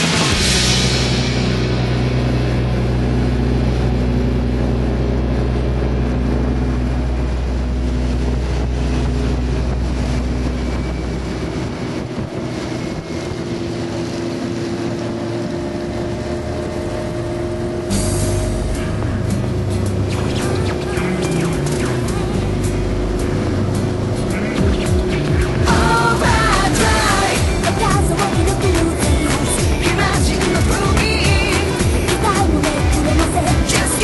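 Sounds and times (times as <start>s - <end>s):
motorcycle engine running: 0.0s - 34.0s
wind rush on microphone: 2.6s - 17.9s.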